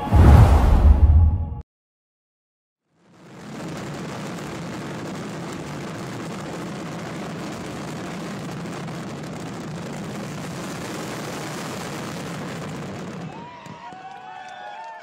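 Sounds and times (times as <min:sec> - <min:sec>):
dense rumbling noise: 0:00.0 - 0:01.6.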